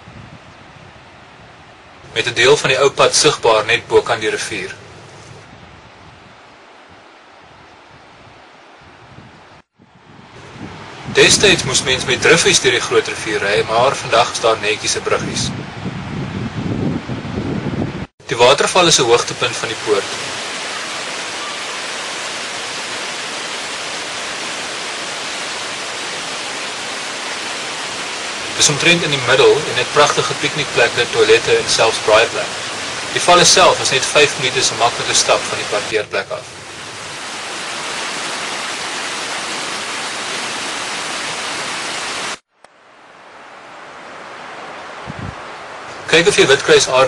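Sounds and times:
faint steady hiss: 0.0 - 8.8, 10.4 - 15.4, 18.3 - 47.0
waterfall rushing: 1.9 - 5.0, 10.6 - 15.4, 18.2 - 47.0.

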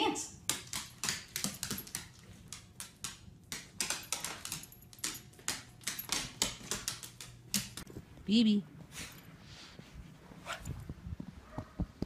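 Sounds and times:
dog claws clicking on wood floor: 0.4 - 7.9.

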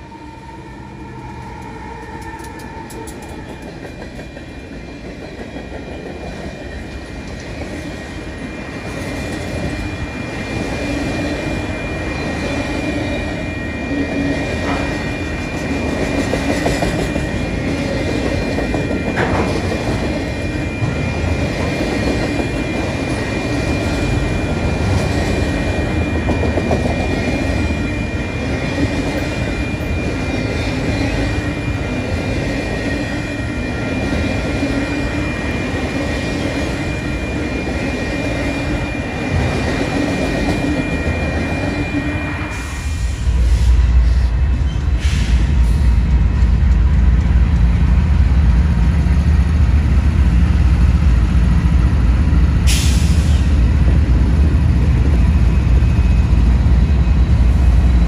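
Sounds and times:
diesel locomotive engine rumble: 0.0 - 58.0
train rolling on rails: 0.0 - 58.0.

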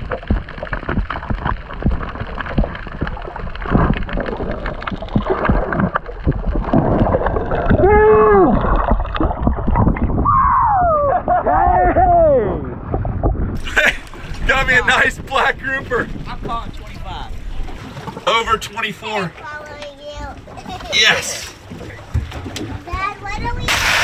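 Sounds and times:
underwater crackle and bubbling: 0.0 - 10.4, 12.7 - 14.5, 21.6 - 24.0
water splashing: 0.0 - 10.6, 11.4 - 24.0
low underwater rumble: 0.0 - 18.2.

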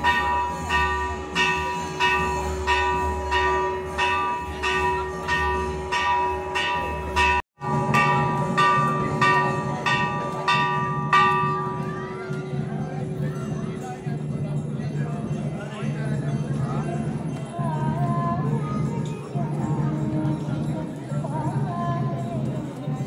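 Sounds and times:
temple bell ringing: 0.0 - 14.8.

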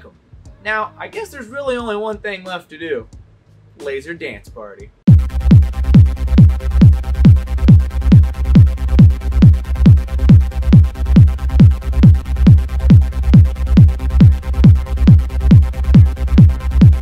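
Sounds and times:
electronic dance music: 5.1 - 17.0.

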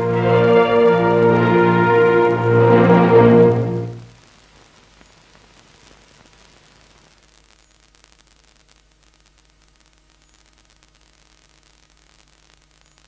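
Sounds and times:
low hum: 0.0 - 4.2
faint steady hiss: 0.0 - 13.0.

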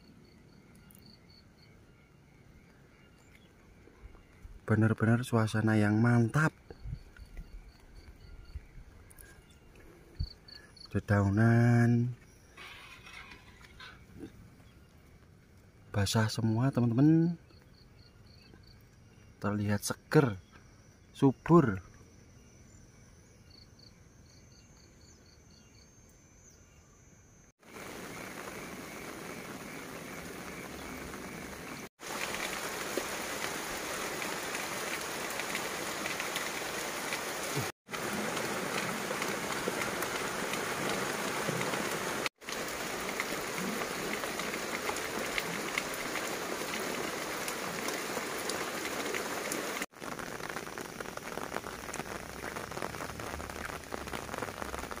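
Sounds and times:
heavy rain pattering: 27.6 - 55.0.

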